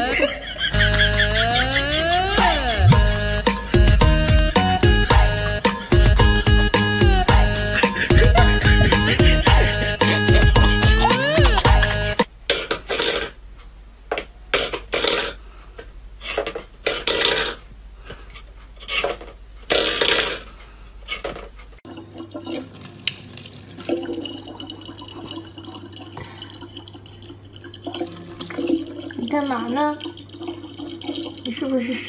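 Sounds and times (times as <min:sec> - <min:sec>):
tap water running into bottle: 0:21.9 - 0:32.0.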